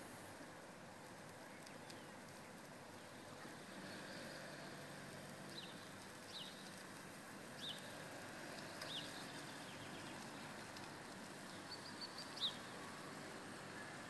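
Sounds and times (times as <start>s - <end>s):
small bird chirping: 8.6s - 10.5s, 11.5s - 12.8s.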